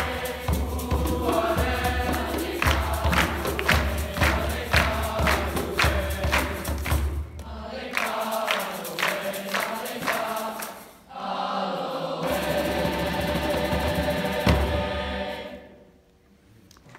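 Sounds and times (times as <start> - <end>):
sharp beats: 0.0 - 11.1
boys' choir singing: 0.0 - 15.9.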